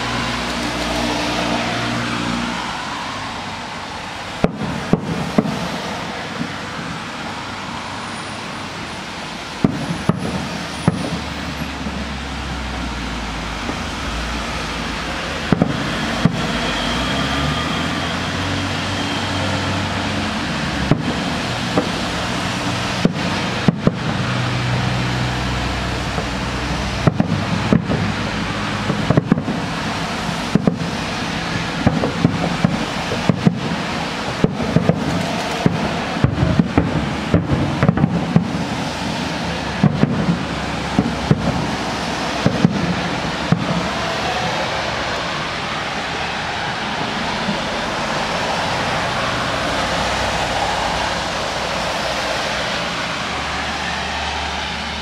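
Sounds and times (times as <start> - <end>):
background noise: 0.0 - 55.0
distant fireworks bangs: 4.3 - 7.2, 9.5 - 18.4, 19.0 - 45.7.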